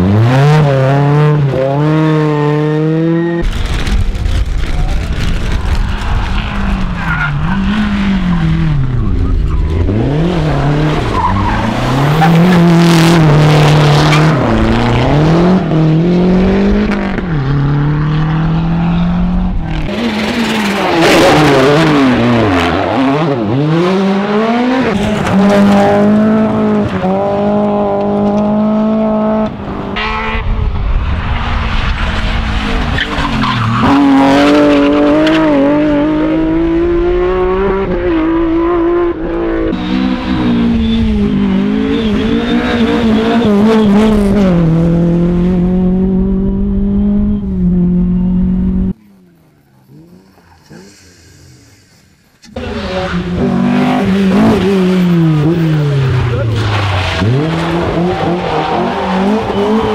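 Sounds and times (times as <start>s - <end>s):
rally car engines revving: 0.0s - 59.9s
tyres sliding on gravel: 54.2s - 59.9s.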